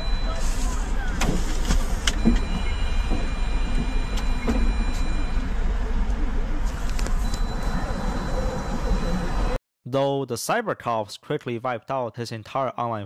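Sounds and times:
car engine and road rumble: 0.0s - 9.6s.

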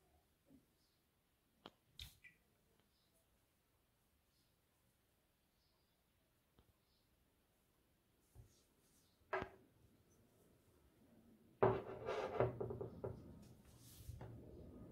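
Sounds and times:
glass bottle knocking on table: 11.6s - 13.2s.

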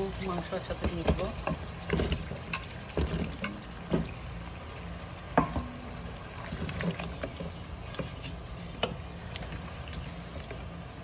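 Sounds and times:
soft knocks against pot: 5.4s - 5.9s.

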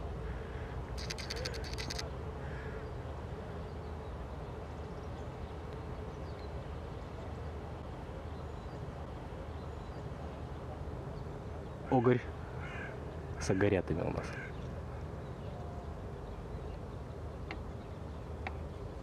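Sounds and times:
bird calls: 0.3s - 2.9s.

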